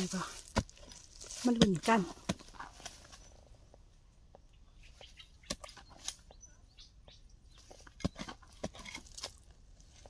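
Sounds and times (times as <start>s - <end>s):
hand tool digging dry soil: 0.0s - 3.5s, 7.5s - 10.0s
faint bird chirp: 2.9s - 8.6s.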